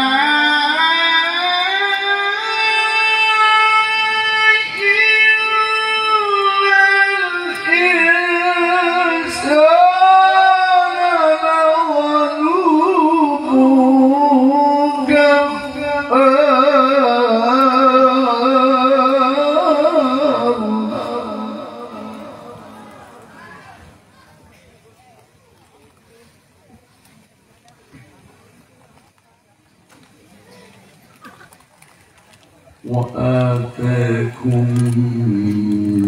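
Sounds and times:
man reciting melodically: 0.0s - 23.5s, 32.8s - 36.0s.

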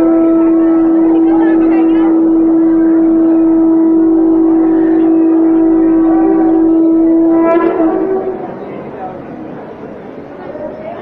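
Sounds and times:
conch shell blown: 0.0s - 8.9s
crowd hubbub: 0.0s - 11.0s.

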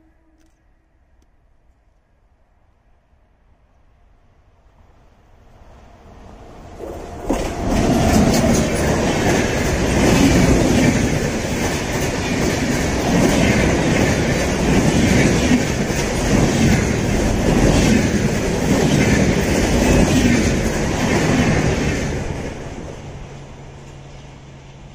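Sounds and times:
train passing with loud rumble: 3.9s - 24.9s.

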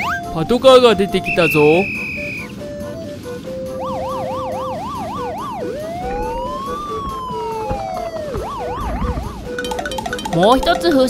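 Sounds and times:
light background music: 0.0s - 11.0s
police siren yelp and wail: 0.0s - 11.0s.

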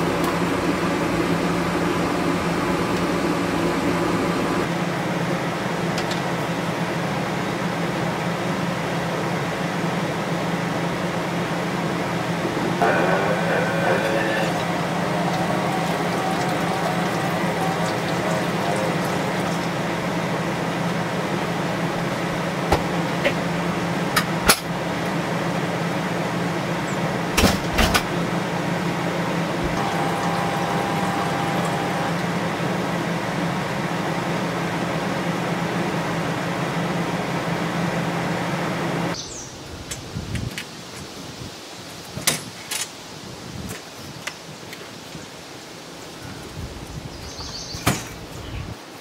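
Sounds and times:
motor humming: 0.0s - 4.7s, 12.1s - 24.1s, 27.9s - 39.2s.

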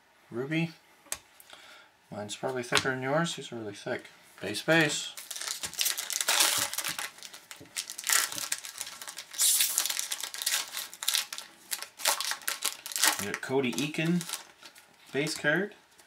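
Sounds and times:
foil wrappers tearing and crinkling: 5.2s - 15.3s.

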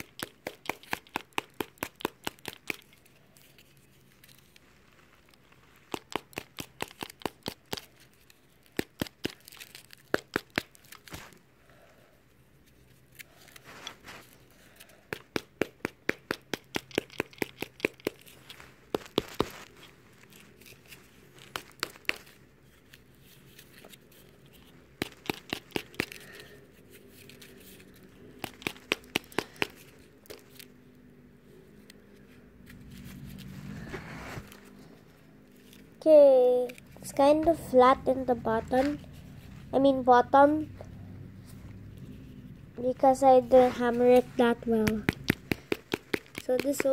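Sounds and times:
hammer pounding foil ball: 0.0s - 2.9s, 15.1s - 19.8s, 21.4s - 22.4s, 24.9s - 26.4s, 28.4s - 30.4s, 44.2s - 46.9s.

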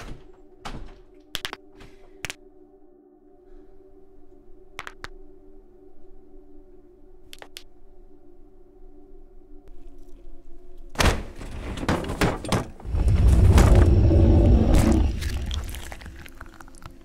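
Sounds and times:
deep rumble: 11.5s - 16.6s
low droning tone: 12.8s - 16.6s.

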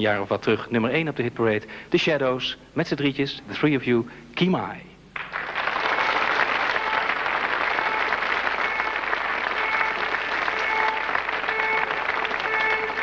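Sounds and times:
audience applauding: 5.2s - 13.0s
faint held musical notes: 6.6s - 13.0s.

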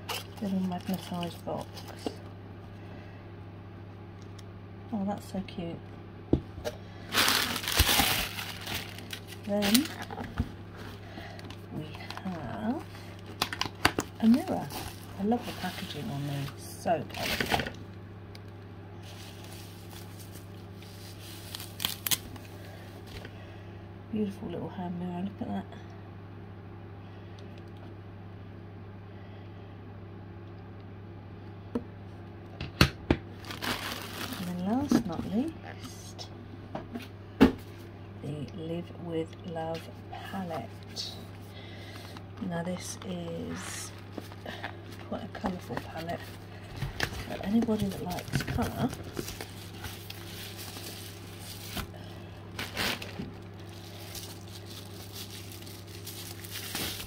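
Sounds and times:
packaging rustling and crinkling: 0.0s - 2.2s, 7.0s - 17.8s, 19.0s - 23.3s, 33.4s - 35.5s, 43.9s - 57.0s
steady low hum: 0.0s - 57.0s.

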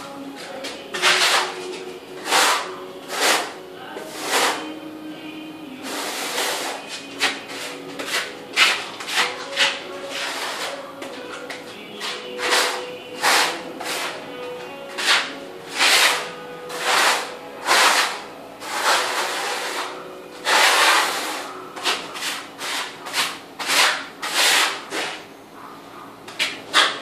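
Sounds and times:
trowel scraping mortar on concrete: 0.6s - 4.7s, 5.9s - 10.8s, 12.0s - 14.2s, 14.9s - 25.2s.

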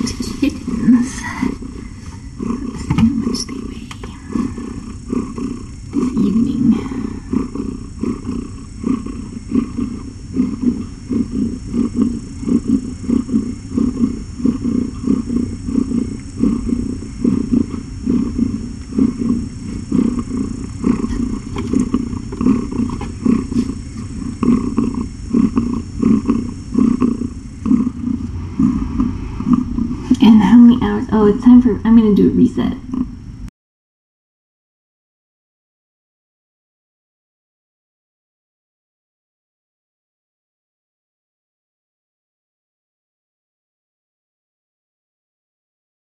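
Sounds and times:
cat purring: 0.0s - 33.2s.

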